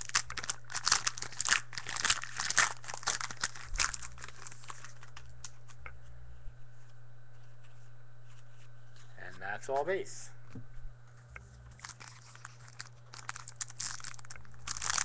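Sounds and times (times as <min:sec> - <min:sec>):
foil wrapper tearing and crinkling: 0:00.0 - 0:05.5, 0:11.7 - 0:15.0.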